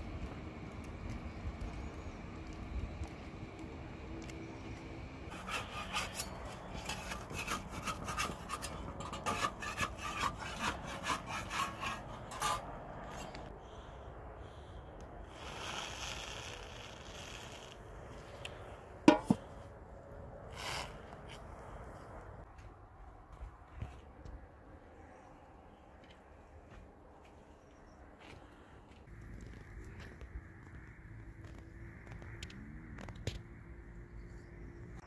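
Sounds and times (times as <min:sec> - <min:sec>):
dough scraping against metal: 0:05.3 - 0:13.3, 0:19.1 - 0:19.4
short hiss: 0:15.3 - 0:17.8.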